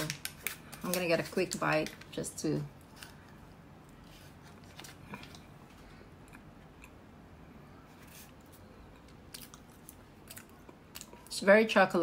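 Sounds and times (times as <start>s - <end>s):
low room hum: 0.0s - 12.0s
person chewing: 6.2s - 7.1s, 8.0s - 11.3s.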